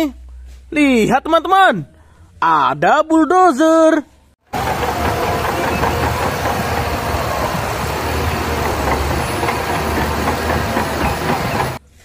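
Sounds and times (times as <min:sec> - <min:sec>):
bulldozer diesel engine under load: 0:04.5 - 0:11.8
steel tracks clattering: 0:04.5 - 0:11.8.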